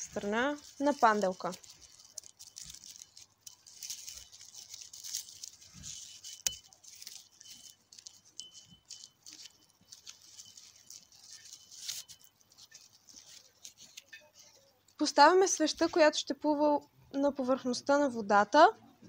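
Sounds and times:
ribbon rustling and clicking: 0:00.0 - 0:16.1.

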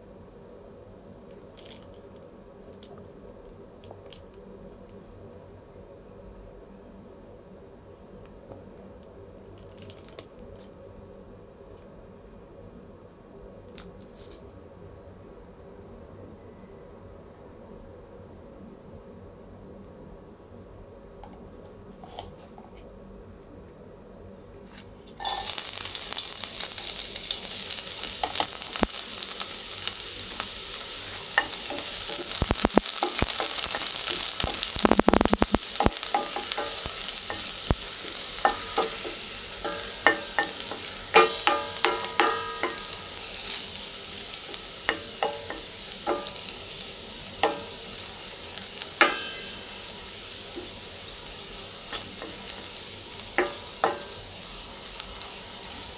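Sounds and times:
garlic sizzling in hot oil: 0:25.2 - 0:55.9.

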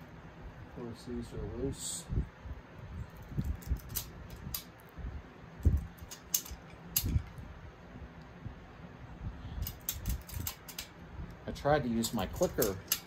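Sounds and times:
socket wrench clicking on metal: 0:06.0 - 0:07.3, 0:09.6 - 0:10.9, 0:12.4 - 0:13.0.

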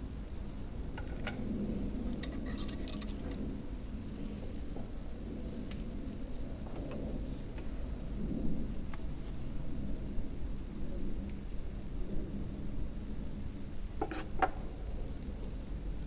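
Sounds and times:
metallic clinks and taps: 0:02.2 - 0:03.5.

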